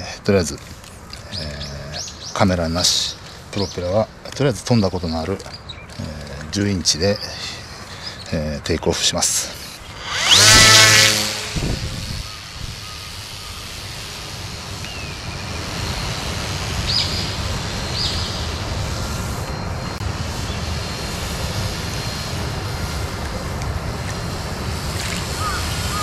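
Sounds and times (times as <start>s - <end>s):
steady rushing noise: 0.0s - 26.0s
electric motor and propeller running: 9.1s - 26.0s.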